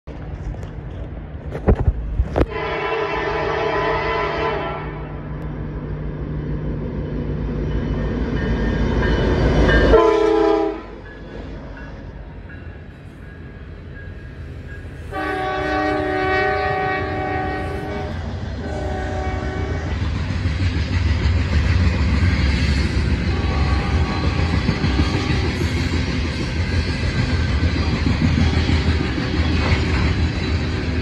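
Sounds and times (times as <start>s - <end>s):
locomotive air horn blasts: 2.4s - 5.2s, 9.9s - 11.0s, 15.1s - 19.9s, 23.3s - 25.6s
locomotive engine rumble: 5.2s - 31.0s.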